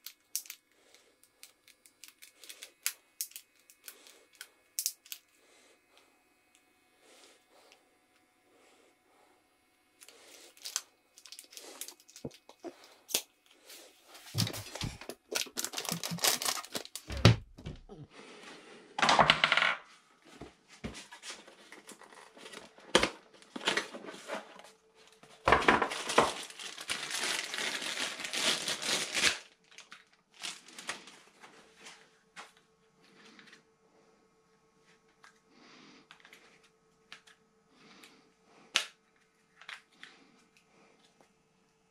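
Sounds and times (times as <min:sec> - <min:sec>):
clicks and knocks of handled parts: 0:00.0 - 0:00.6
packaging tearing and crinkling: 0:10.0 - 0:13.3, 0:14.3 - 0:17.3, 0:25.7 - 0:31.2.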